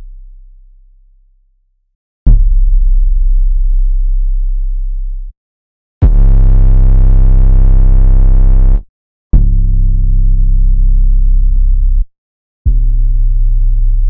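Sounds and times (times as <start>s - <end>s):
deep sustained bass tone: 0.0s - 1.6s, 2.3s - 5.3s, 6.0s - 8.8s, 9.4s - 12.1s, 12.7s - 14.0s
buzzy bass kick: 2.3s - 5.3s, 6.0s - 12.0s, 12.7s - 14.0s.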